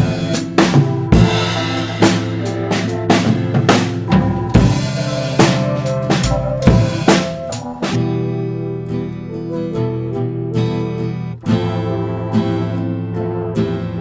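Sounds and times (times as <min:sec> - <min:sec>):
drum kit beat: 0:00.0 - 0:08.2
sustained chords: 0:00.0 - 0:14.0.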